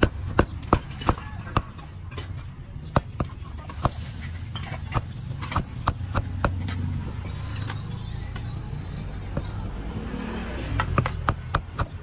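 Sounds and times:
cleaver chopping on wooden board: 0:00.0 - 0:01.8, 0:10.8 - 0:12.0.

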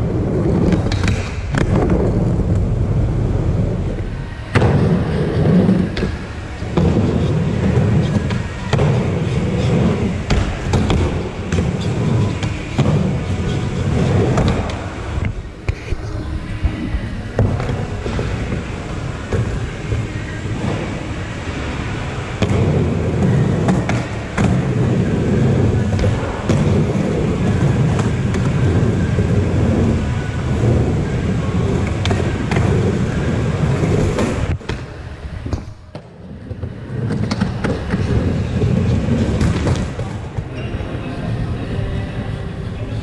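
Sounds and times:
skateboard wheels rolling: 0:00.0 - 0:43.0
skateboard clacks: 0:00.1 - 0:02.7.

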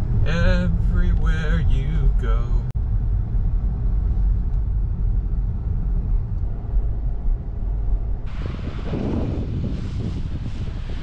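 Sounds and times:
road and tyre rumble in car: 0:00.0 - 0:11.0
wind gusting over microphone: 0:02.8 - 0:11.0.

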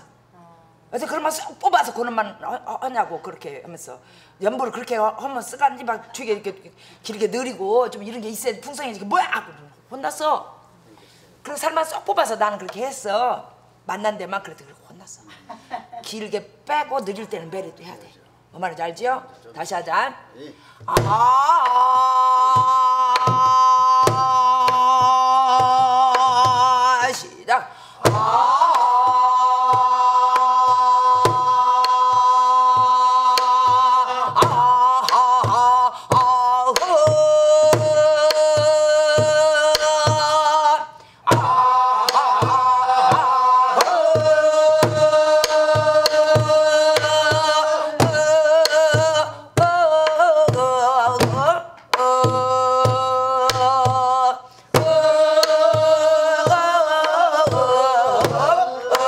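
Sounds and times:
breaths between phrases: 0:04.0 - 0:04.4, 0:06.7 - 0:07.1, 0:10.7 - 0:11.5, 0:20.2 - 0:20.9, 0:27.6 - 0:28.1, 0:40.9 - 0:41.3, 0:54.4 - 0:54.8.

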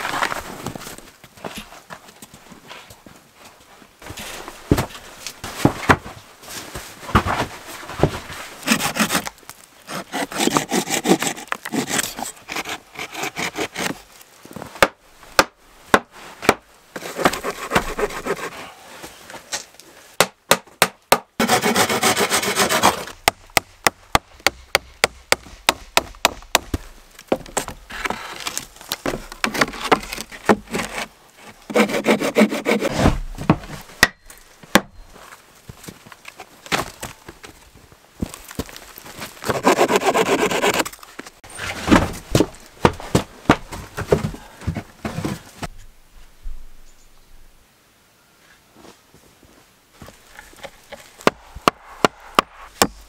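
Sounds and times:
footsteps on wooden boards: 0:23.2 - 0:30.9, 0:38.2 - 0:45.8
wooden boards knocking and scraping: 0:41.6 - 0:45.8, 0:50.5 - 0:53.0.

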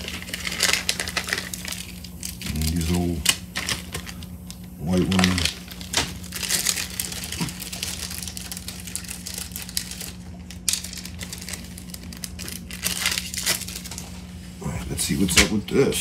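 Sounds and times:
plastic bag crinkling: 0:00.0 - 0:14.4
steady low hum: 0:00.0 - 0:16.0.

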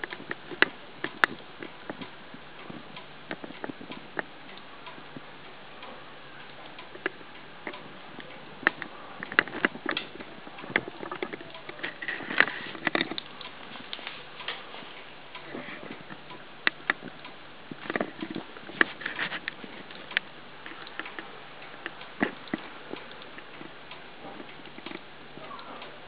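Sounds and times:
steady hiss: 0:00.0 - 0:26.0
light clicks and taps: 0:15.4 - 0:25.9.

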